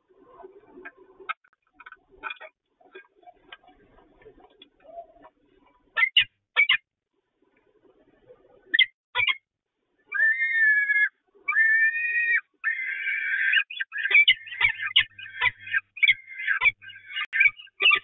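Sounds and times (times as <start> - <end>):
falcons calling: 10.1 - 18.0.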